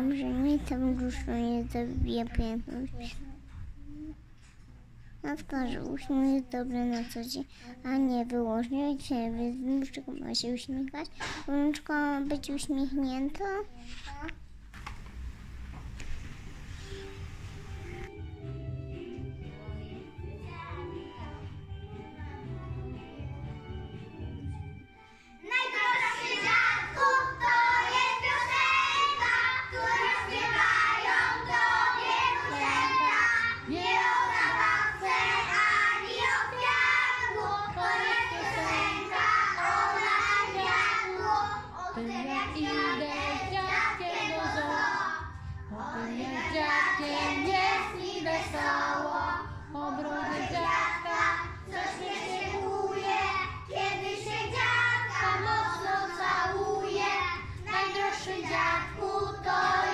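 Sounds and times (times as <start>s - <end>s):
children singing: 25.4s - 59.9s.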